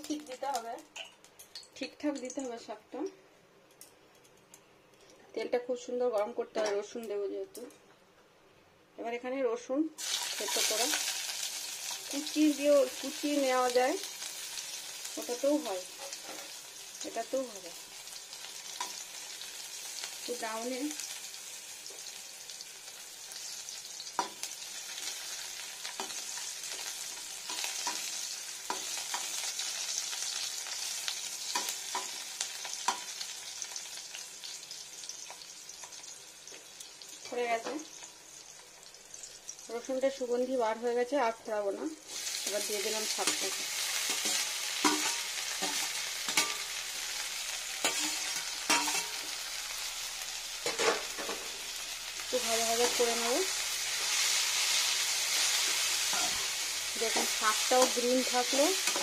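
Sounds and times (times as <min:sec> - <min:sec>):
garlic sizzling in hot oil: 0:00.0 - 0:02.8, 0:10.0 - 0:59.0
metal spoon clinking against pan: 0:44.1 - 0:46.8, 0:47.8 - 0:49.2.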